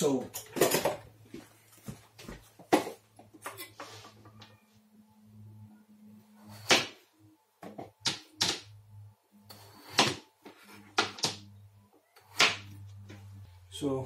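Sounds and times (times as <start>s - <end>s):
knife chopping on plastic board: 9.8s - 10.2s, 10.9s - 11.4s.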